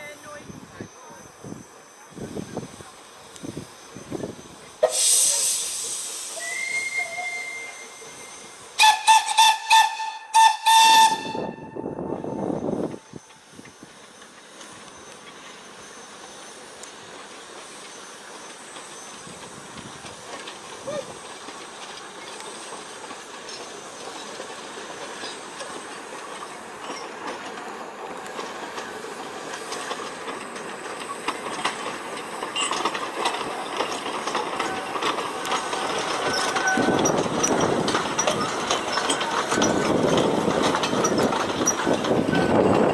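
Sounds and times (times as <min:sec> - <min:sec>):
steam hiss: 0:00.0 - 0:42.9
steam locomotive approaching: 0:00.0 - 0:42.9
wheels clicking over rail joints: 0:12.9 - 0:42.9.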